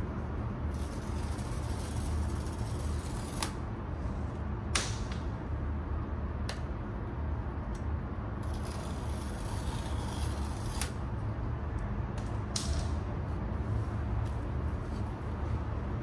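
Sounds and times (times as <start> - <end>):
low background rumble: 0.0 - 16.0.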